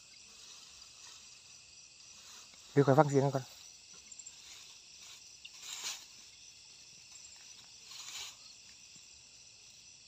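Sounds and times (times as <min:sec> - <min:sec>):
crickets and insects buzzing: 0:00.0 - 0:10.0
short rustles: 0:03.5 - 0:09.0.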